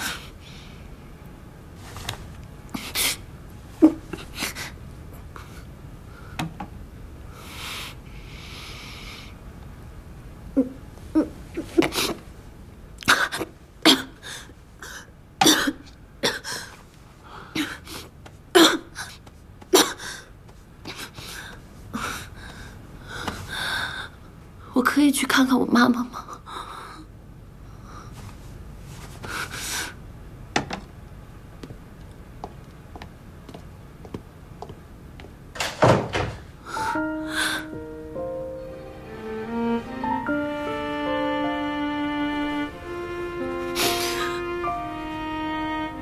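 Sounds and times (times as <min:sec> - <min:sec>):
woman coughing: 0:13.1 - 0:14.2, 0:15.4 - 0:16.5
woman crying: 0:43.7 - 0:44.6.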